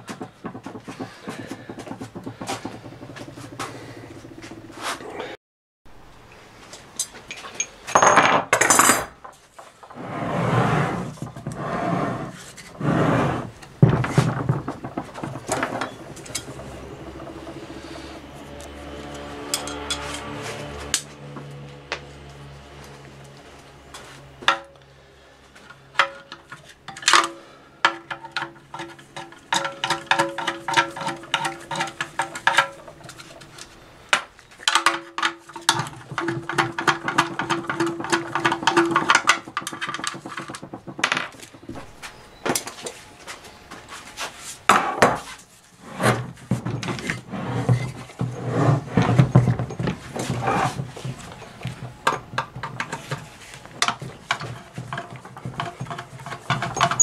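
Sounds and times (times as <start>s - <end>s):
metal knocks: 0.0s - 4.8s, 13.7s - 20.0s.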